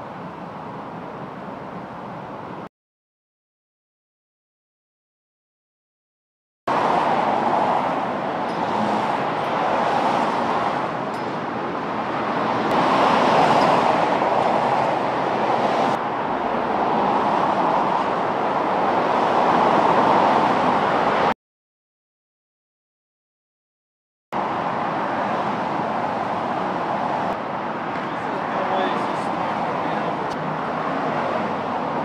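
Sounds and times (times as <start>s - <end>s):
road traffic passing: 6.7s - 21.4s, 24.4s - 32.0s.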